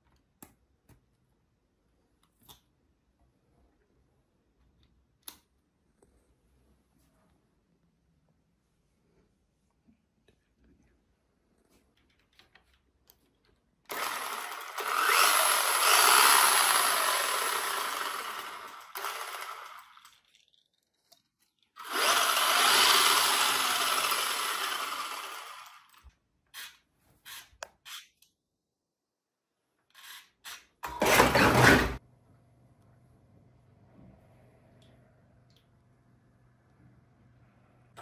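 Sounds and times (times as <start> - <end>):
toy car electric motor whirring: 13.9 - 20.4, 21.8 - 26.0.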